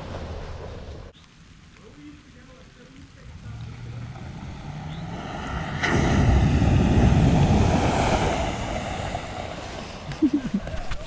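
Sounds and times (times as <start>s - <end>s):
tyres rushing on wet gravel: 0.0s - 11.0s
car engine hum: 3.0s - 11.0s.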